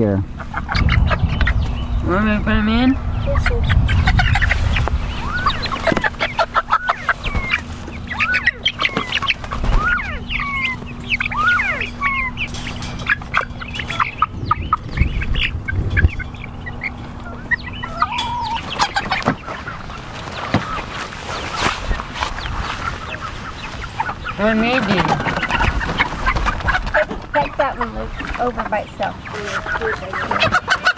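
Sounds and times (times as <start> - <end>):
chicks peeping and clucking: 0.0 - 30.9.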